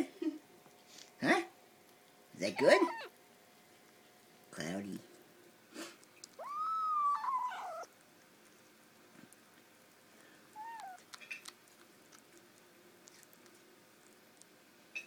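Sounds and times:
high whining animal cry: 2.6 - 3.1, 6.4 - 7.9, 10.6 - 11.0.

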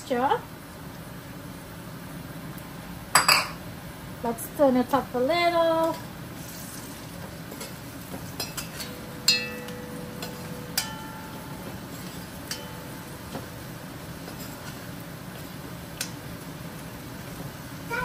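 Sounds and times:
low steady hiss: 8.0 - 18.0
metal spoon clinking in pot: 8.4 - 13.4.

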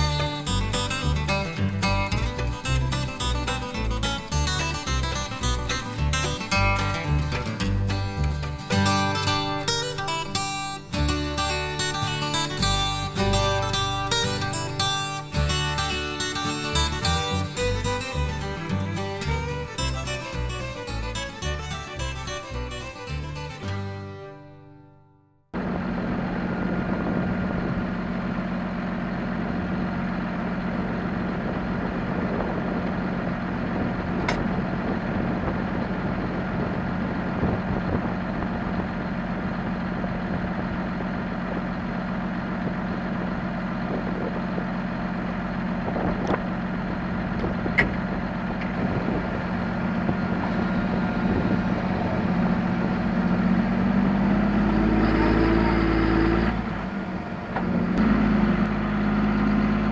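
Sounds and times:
tractor diesel engine idling: 0.0 - 24.3, 25.6 - 59.9.

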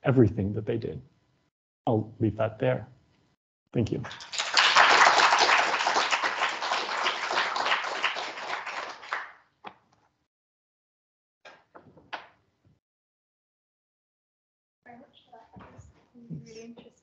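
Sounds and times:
audience applauding: 4.0 - 9.4.

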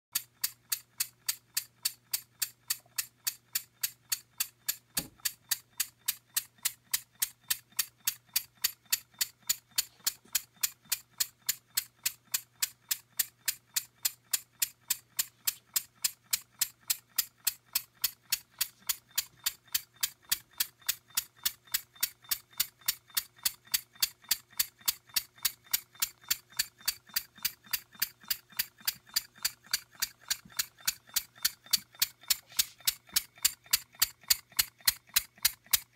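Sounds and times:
model engine exhaust puffs: 0.4 - 35.9.

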